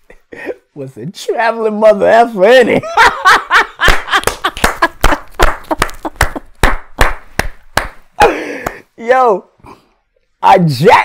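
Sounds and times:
man laughing: 0.0 - 0.8, 2.8 - 6.5, 8.2 - 8.9
man clapping hands: 3.9 - 8.0, 8.6 - 8.8.

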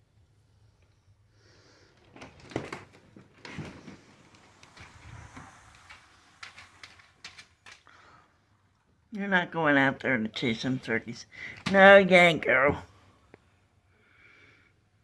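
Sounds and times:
rustling: 1.5 - 8.8.

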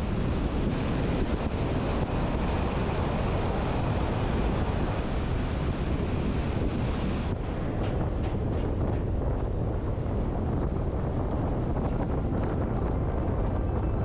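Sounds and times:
vehicle road noise: 0.0 - 14.0
wind buffeting microphone: 0.0 - 14.0.

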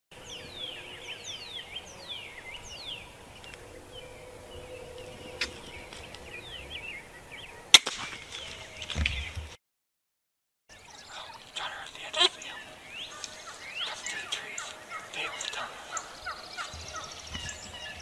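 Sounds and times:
small birds whistling: 0.2 - 9.4, 10.7 - 18.0
loud sharp crack: 7.7 - 8.5.

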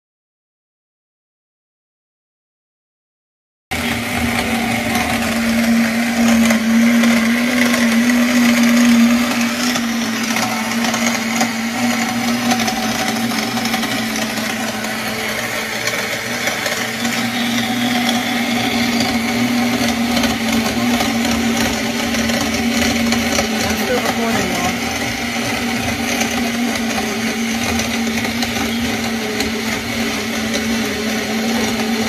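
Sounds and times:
blender crushing ice: 3.7 - 32.0.

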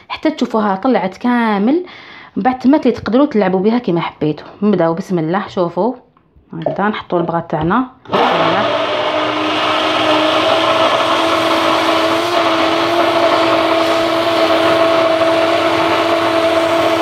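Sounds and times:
immersion blender whirring: 8.0 - 17.0.

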